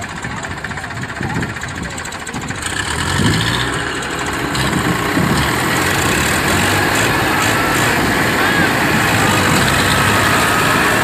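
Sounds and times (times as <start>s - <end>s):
tractor diesel engines running: 0.0s - 11.0s.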